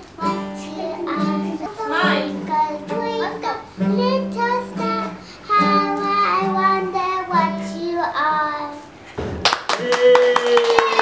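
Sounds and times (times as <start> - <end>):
instrumental backing: 0.0 - 8.8
child singing a song: 0.1 - 8.9.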